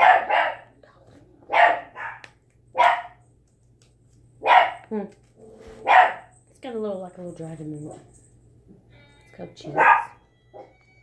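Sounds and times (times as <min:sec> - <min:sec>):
dog barking: 0:00.0 - 0:00.7, 0:01.5 - 0:03.2, 0:04.4 - 0:04.8, 0:05.8 - 0:06.4, 0:09.8 - 0:10.7.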